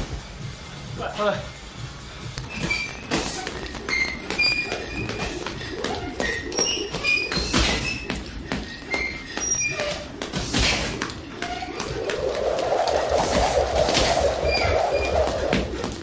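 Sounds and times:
short high squeaks: 0:02.5 - 0:08.1, 0:08.7 - 0:10.1
jump rope slapping floor: 0:03.2 - 0:16.0.

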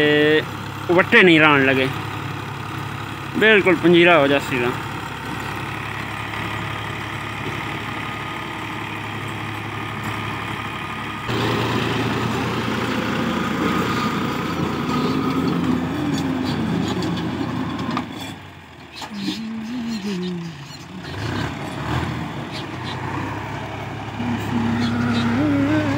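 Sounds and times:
tractor diesel engine under load: 0:00.0 - 0:25.9
rotary tiller in dry soil: 0:02.7 - 0:19.4.

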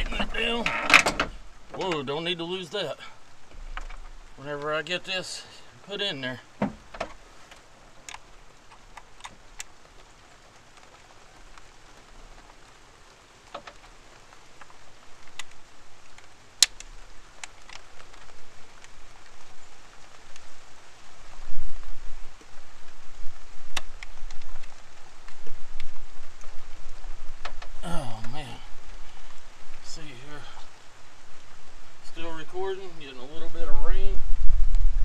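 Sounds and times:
low rumbling: 0:00.0 - 0:10.4, 0:14.0 - 0:35.0
light rain hiss: 0:00.0 - 0:35.0.

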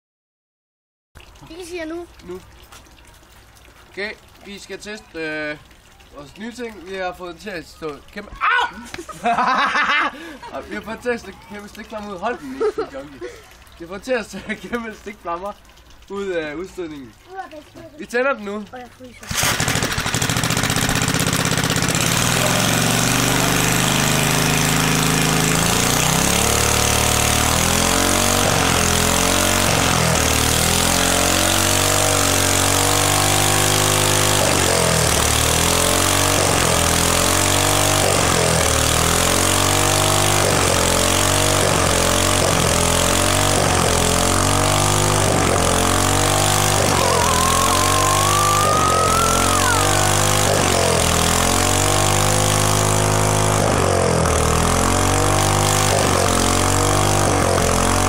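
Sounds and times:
small engine revving: 0:19.2 - 0:58.0
thin rising whine: 0:39.8 - 0:58.0.

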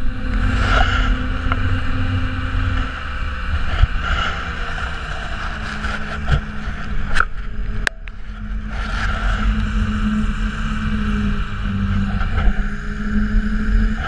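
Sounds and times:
snowcat engine droning: 0:00.0 - 0:14.0.

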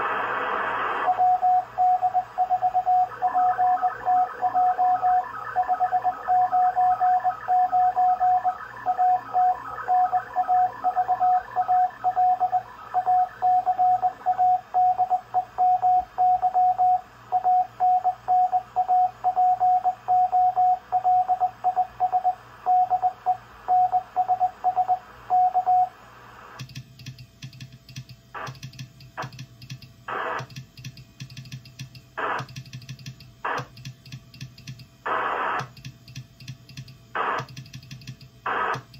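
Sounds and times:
radio band noise: 0:00.0 - 0:01.2, 0:28.4 - 0:28.6, 0:30.1 - 0:30.5, 0:32.2 - 0:32.6, 0:33.4 - 0:33.8, 0:35.0 - 0:35.7, 0:37.2 - 0:37.5, 0:38.4 - 0:38.9
static crackle: 0:00.0 - 0:01.2, 0:28.3 - 0:29.3, 0:30.1 - 0:30.7, 0:32.1 - 0:33.9, 0:35.0 - 0:35.8, 0:37.1 - 0:37.8, 0:38.4 - 0:38.9
morse code tone: 0:01.1 - 0:26.0.

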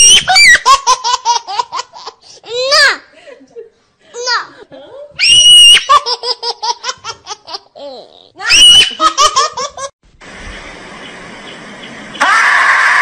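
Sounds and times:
high-pitched laughter: 0:08.5 - 0:09.9
steady hiss: 0:10.1 - 0:12.2.

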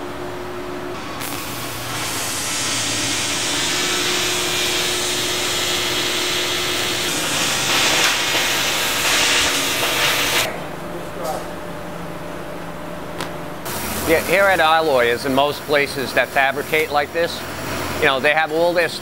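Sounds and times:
loud steady hiss: 0:01.0 - 0:10.5, 0:13.7 - 0:19.0.

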